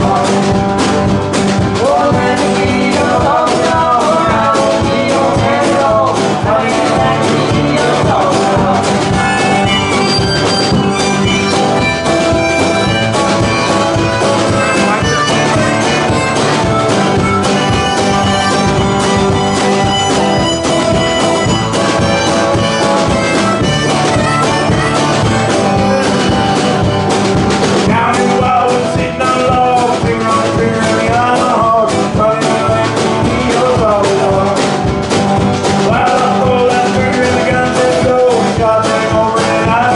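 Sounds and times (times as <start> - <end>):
drums: 0.0 - 39.9
harmonica: 0.0 - 39.9
strummed guitar: 0.0 - 39.9
upright bass: 0.0 - 39.9
woman singing: 1.8 - 9.8.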